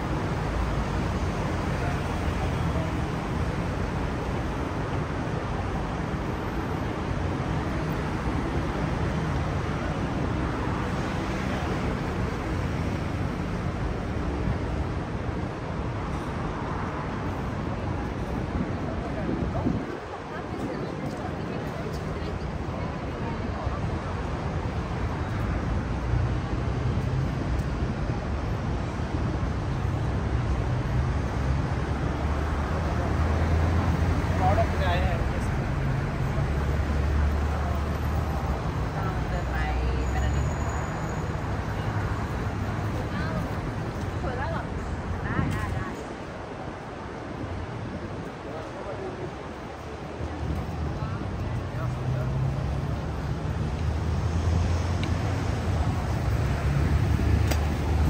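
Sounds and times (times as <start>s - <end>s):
road traffic rumble: 0.0s - 58.0s
vehicle engines humming: 20.9s - 58.0s.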